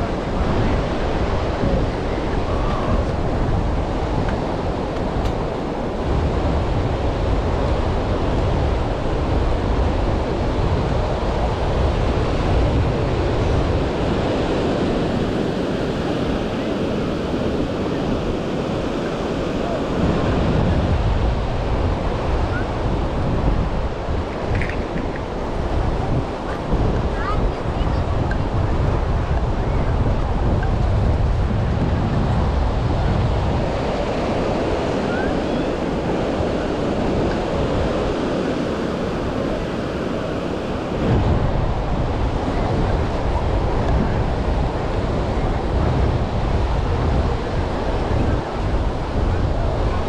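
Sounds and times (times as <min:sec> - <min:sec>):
ocean surf washing: 0:00.0 - 0:50.0
wind buffeting microphone: 0:00.0 - 0:50.0.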